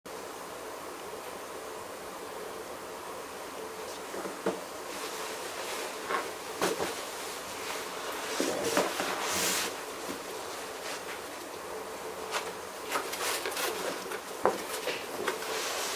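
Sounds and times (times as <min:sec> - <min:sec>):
steady background hiss: 0:00.1 - 0:15.9
scraping rustle: 0:03.8 - 0:15.9.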